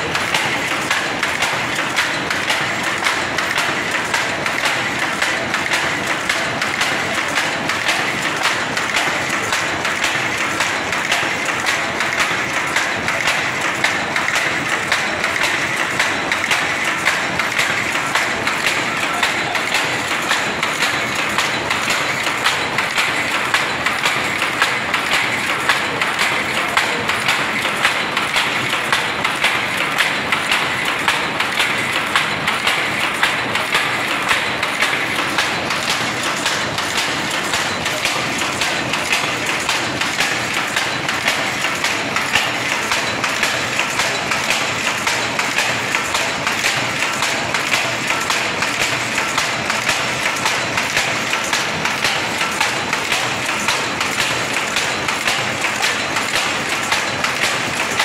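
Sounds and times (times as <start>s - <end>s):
power loom rhythmic clatter: 0.0s - 58.0s.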